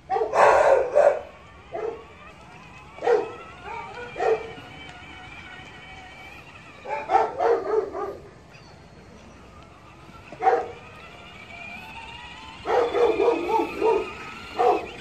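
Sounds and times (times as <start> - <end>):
small dog yipping: 2.9 - 4.6, 12.6 - 15.0.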